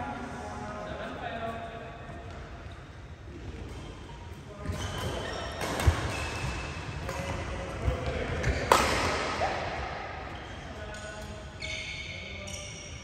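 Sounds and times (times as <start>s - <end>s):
racket hitting shuttlecock: 4.7s - 7.5s, 8.4s - 9.4s.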